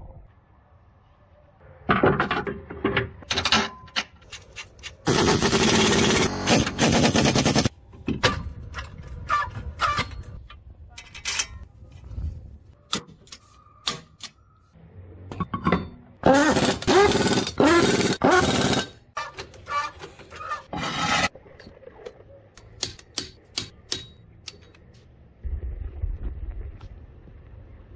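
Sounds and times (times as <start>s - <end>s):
impact wrench bursts: 5.1s - 7.7s, 16.2s - 18.9s.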